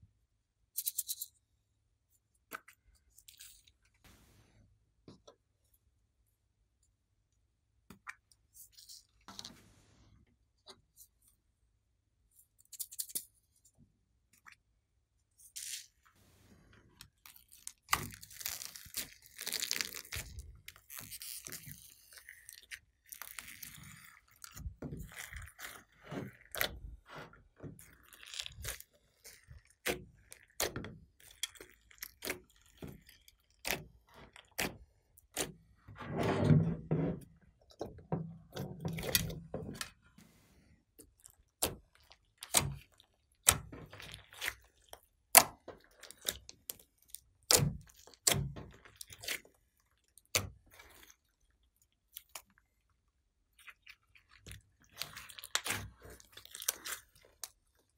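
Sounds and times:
slime squishing and clicking: 27.8s - 35.6s, 41.0s - 49.5s, 54.4s - 57.6s.

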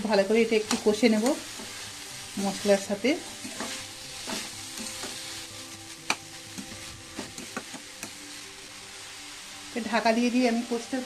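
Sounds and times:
food sizzling in pan: 0.0s - 11.0s
spatula scraping and tapping pan: 3.2s - 5.3s, 6.0s - 8.2s.

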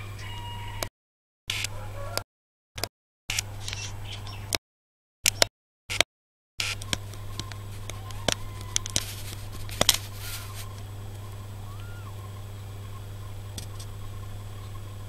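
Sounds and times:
straw bedding crackling: 6.6s - 11.7s
steady low hum: 6.6s - 15.0s
kitten squeaks: 7.8s - 9.3s, 10.0s - 10.7s, 11.7s - 12.2s.

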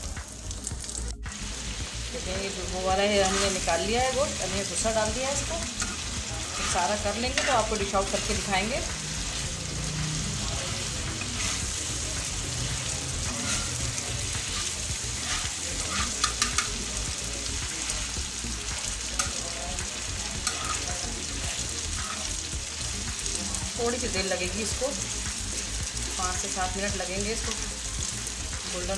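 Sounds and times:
beef sizzling in oil: 0.0s - 28.9s
spatula scraping a griddle: 3.1s - 4.2s, 5.7s - 17.0s, 20.4s - 21.0s, 22.0s - 22.4s.

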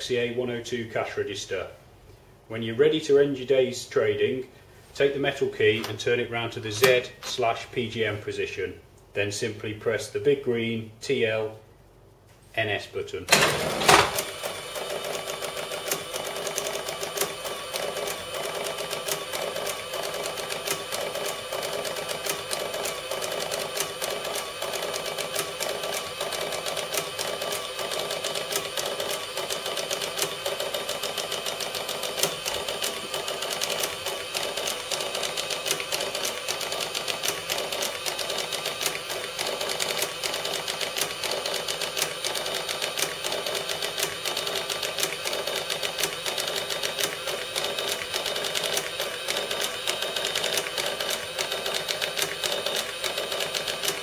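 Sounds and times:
receipt printer clicking chatter: 13.3s - 54.0s.

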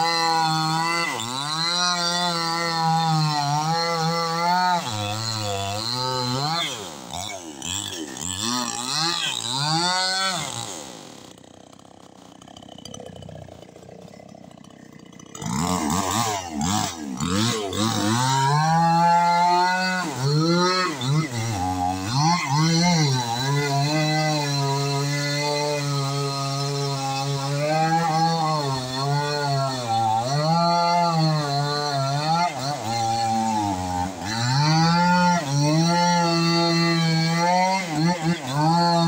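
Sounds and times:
chainsaw cutting wood: 0.0s - 39.0s
chainsaw revving: 0.0s - 39.0s.

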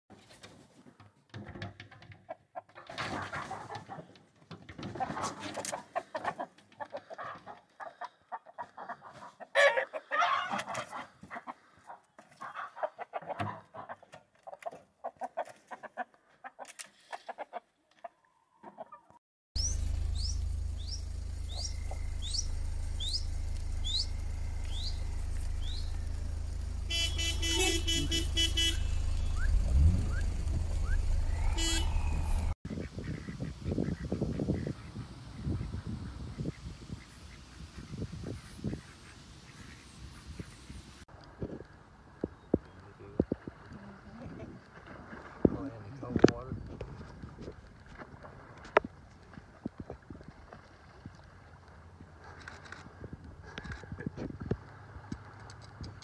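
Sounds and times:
roosters clucking and crowing: 1.9s - 41.0s
low engine hum: 19.6s - 32.6s
loud harsh tone: 26.9s - 30.0s, 31.2s - 32.5s.

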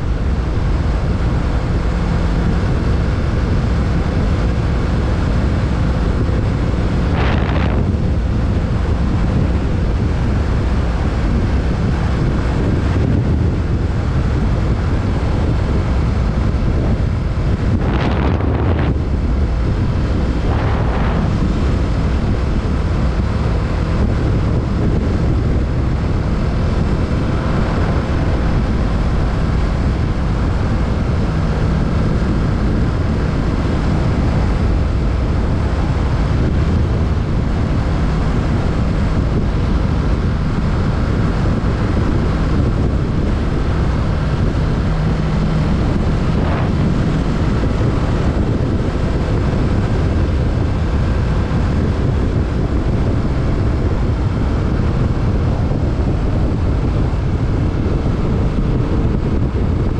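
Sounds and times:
wind noise on microphone: 0.0s - 59.9s
motorcycle engine running: 4.8s - 11.1s, 42.0s - 50.5s.

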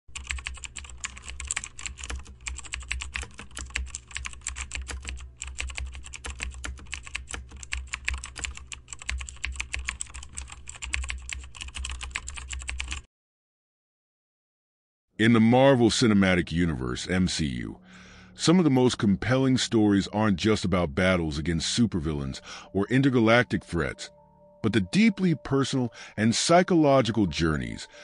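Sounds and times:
fast typing on a keyboard: 0.1s - 13.1s
low steady hum: 15.3s - 28.0s.

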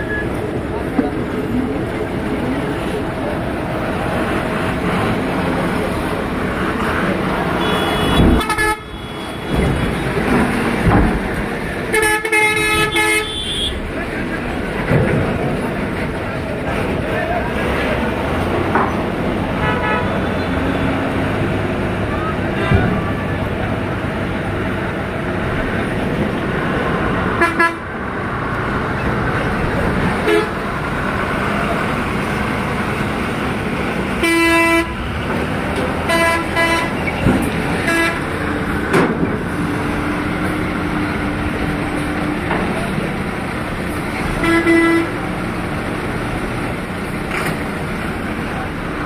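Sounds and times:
vehicle horns honking: 7.6s - 10.0s, 11.9s - 13.8s, 19.6s - 20.3s, 27.4s - 27.8s, 30.2s - 30.6s, 34.2s - 35.0s, 36.1s - 37.1s, 37.8s - 38.3s, 44.4s - 45.2s.

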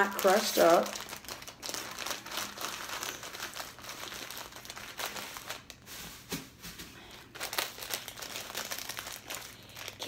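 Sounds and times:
plastic snack bag crinkling: 0.0s - 10.0s.

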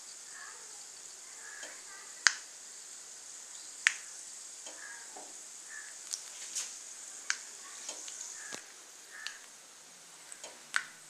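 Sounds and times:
seeds sizzling in hot oil: 0.0s - 11.0s
sharp pops of seeds: 1.6s - 2.5s, 3.8s - 9.6s, 10.3s - 11.0s.

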